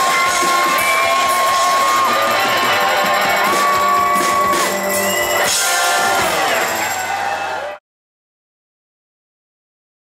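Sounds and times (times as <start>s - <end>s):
electric guitars: 0.0s - 7.7s
drums: 0.0s - 7.8s.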